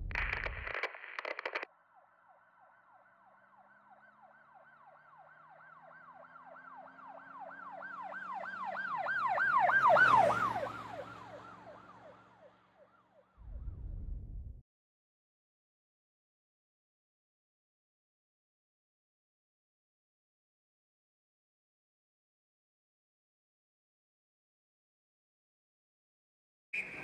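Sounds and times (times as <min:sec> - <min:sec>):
vehicle engine and tyre rush: 0:08.3 - 0:12.0, 0:13.4 - 0:14.6
street noise: 0:26.8 - 0:27.0.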